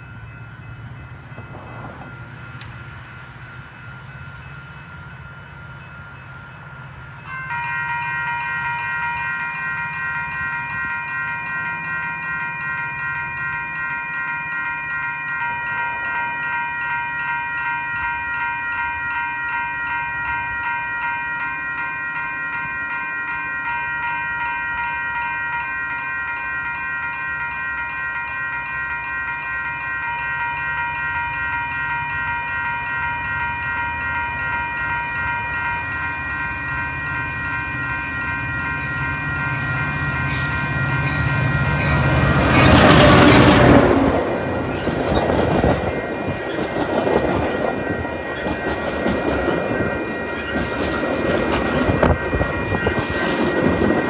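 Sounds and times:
diesel train rumble: 0.0 - 13.6, 31.4 - 54.0
crossing warning bell ringing: 0.0 - 54.0.

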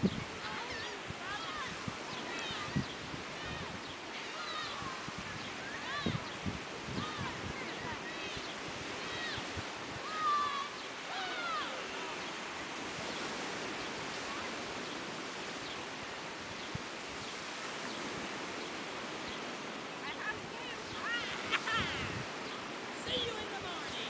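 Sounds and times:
surf washing on a beach: 0.0 - 24.0
faint high calls: 8.1 - 12.4.

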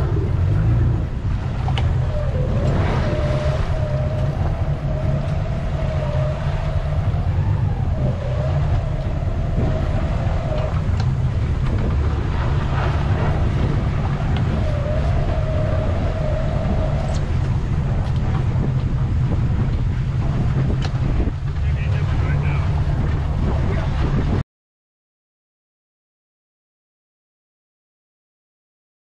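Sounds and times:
wavering whine: 0.0 - 24.0
boat engine rumbling: 0.0 - 24.4.

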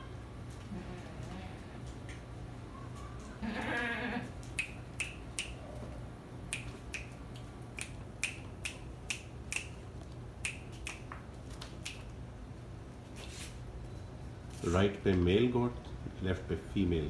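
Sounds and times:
goat kid bleating: 0.6 - 1.8, 3.4 - 4.3.

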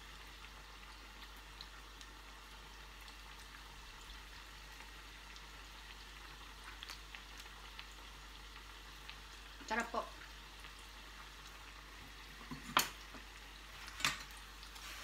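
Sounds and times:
oil sizzling in a pan: 0.0 - 15.0
light crackles: 6.6 - 9.2, 12.8 - 15.0.

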